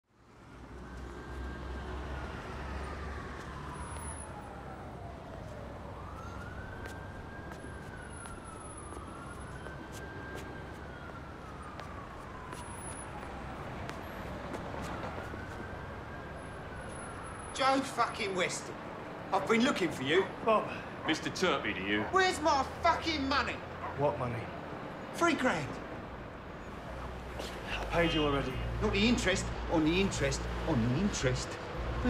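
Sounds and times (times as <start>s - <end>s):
low city rumble: 0.0s - 32.0s
emergency siren wailing: 0.2s - 25.0s.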